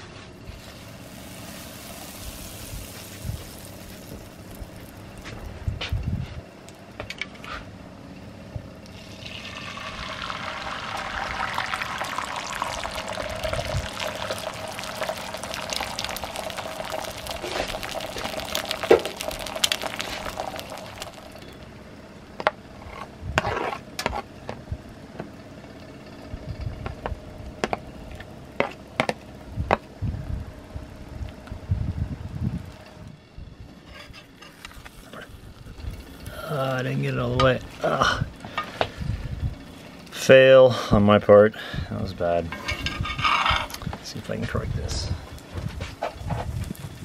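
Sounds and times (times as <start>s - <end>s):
egg sizzling in a skillet: 0.5s - 5.4s, 8.9s - 21.8s, 34.5s - 37.8s.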